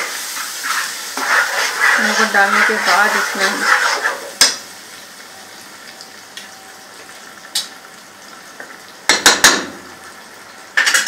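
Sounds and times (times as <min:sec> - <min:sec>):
curry sizzling in a pot: 0:00.0 - 0:11.0
spoon knocking on pot: 0:09.1 - 0:09.8.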